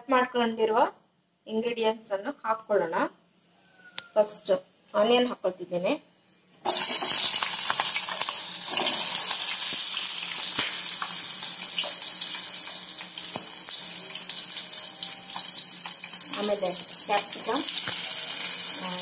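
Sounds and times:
onions sizzling in hot oil: 0:06.6 - 0:19.0
oil crackling: 0:06.7 - 0:19.0.

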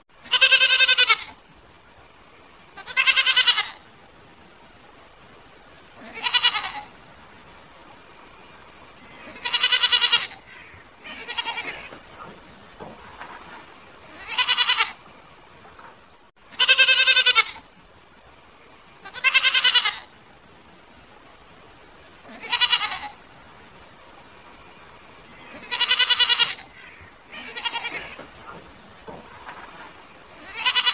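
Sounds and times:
goats bleating: 0:00.2 - 0:01.4, 0:02.8 - 0:03.8, 0:06.0 - 0:06.9, 0:09.1 - 0:15.1, 0:16.5 - 0:17.7, 0:19.0 - 0:20.2, 0:22.2 - 0:23.2, 0:25.4 - 0:30.9.

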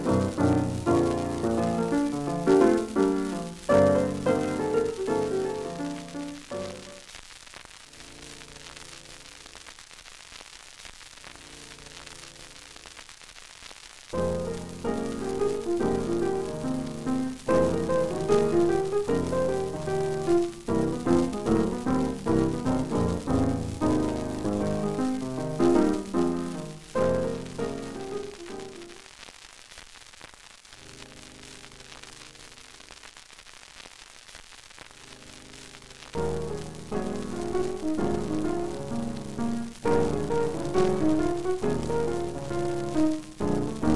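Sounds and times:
loud piano music: 0:00.0 - 0:07.0, 0:14.2 - 0:28.9, 0:36.2 - 0:43.9
static hiss: 0:00.0 - 0:43.9.

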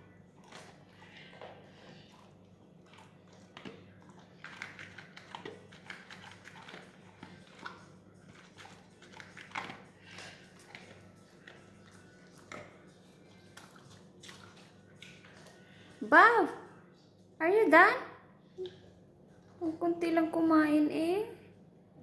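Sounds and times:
dog crunching dry kibble: 0:02.8 - 0:15.4.

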